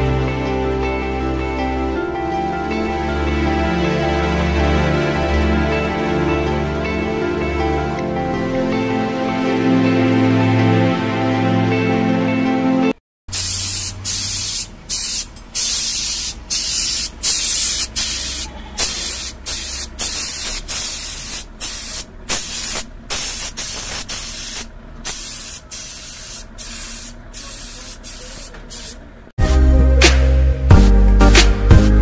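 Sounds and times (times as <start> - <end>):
background music: 0.0 - 13.0, 29.4 - 32.0
high-pressure water jet spraying: 13.3 - 29.0.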